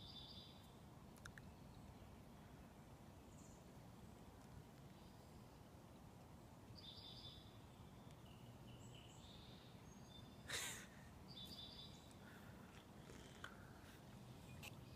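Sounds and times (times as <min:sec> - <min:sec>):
faint bird chirps: 0:00.0 - 0:00.8, 0:06.8 - 0:10.6, 0:11.2 - 0:14.9.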